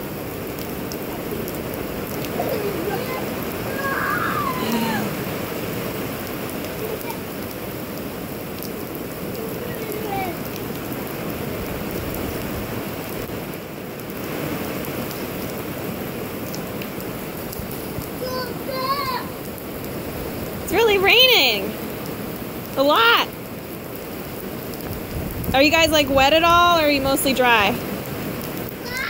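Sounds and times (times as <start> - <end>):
heavy rain on pavement: 0.0 - 29.0.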